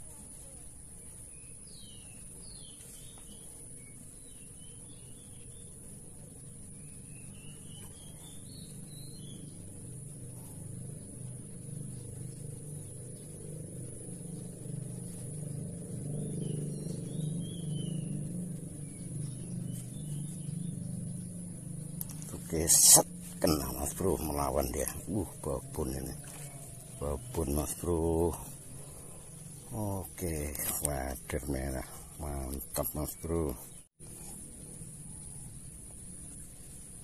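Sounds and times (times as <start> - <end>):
low engine hum: 5.8 - 32.9.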